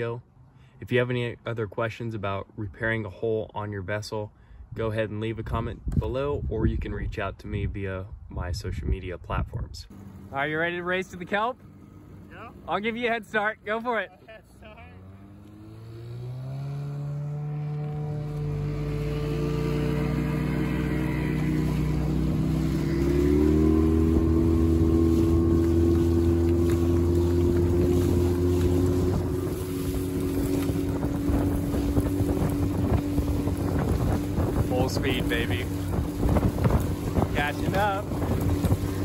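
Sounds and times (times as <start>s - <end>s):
wind on microphone: 5.4s - 9.9s, 17.7s - 39.0s
outboard motor at full throttle: 9.9s - 14.0s, 14.6s - 39.0s
rushing water: 18.0s - 39.0s.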